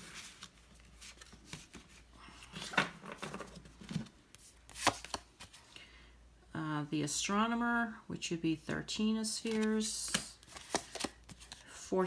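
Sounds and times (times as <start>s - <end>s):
cards sliding and rubbing: 4.3s - 5.6s.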